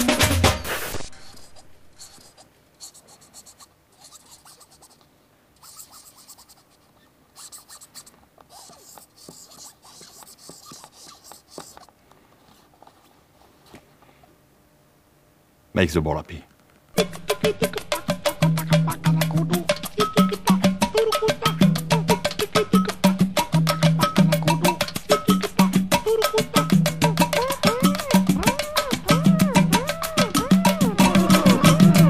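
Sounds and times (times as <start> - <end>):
marker pen scratching on ball: 0.6 - 13.1, 24.0 - 32.0.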